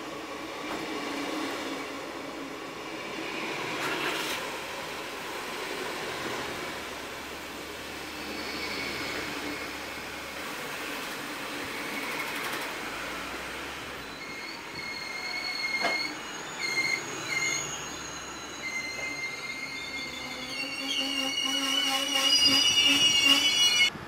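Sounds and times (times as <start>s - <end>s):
train wheels rumbling on rail: 0.0s - 24.0s
high-pitched wheel squeal: 8.0s - 10.1s, 14.0s - 23.9s.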